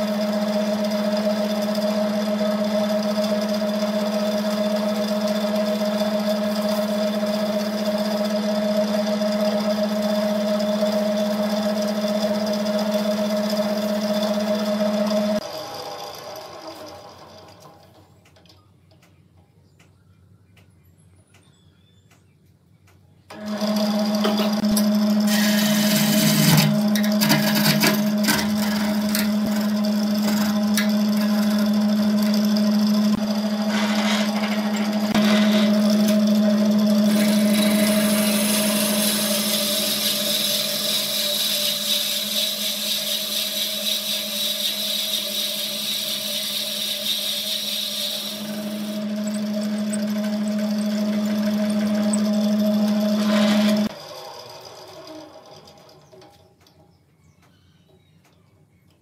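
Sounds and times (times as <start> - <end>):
wood lathe motor hum: 0.0 - 17.8, 23.3 - 56.1
boring bit scraping wood: 24.2 - 53.9.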